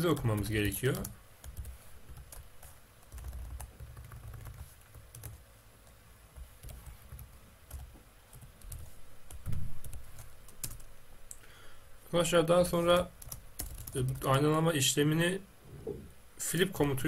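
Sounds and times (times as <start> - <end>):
keyboard typing: 0.1 - 5.4, 6.4 - 10.9, 13.0 - 14.2
faint low rumble: 15.5 - 16.4.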